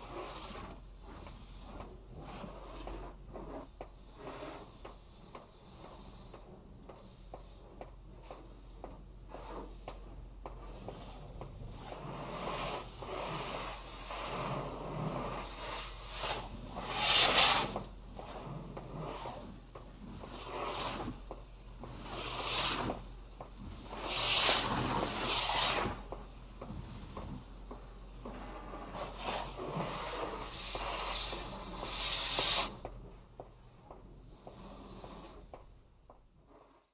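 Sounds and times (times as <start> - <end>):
high-pressure spray hitting car: 11.8 - 21.2, 21.8 - 33.5, 34.4 - 36.8.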